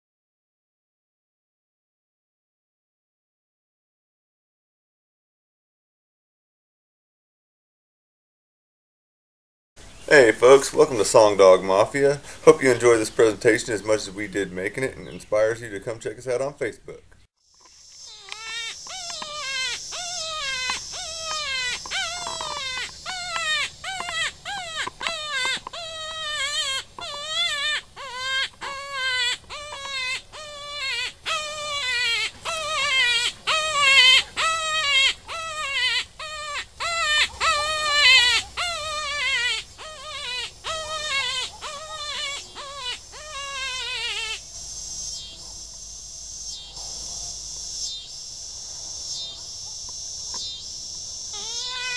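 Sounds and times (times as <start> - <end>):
predator call distress cries: 17.9 - 45.7, 49.1 - 51.9.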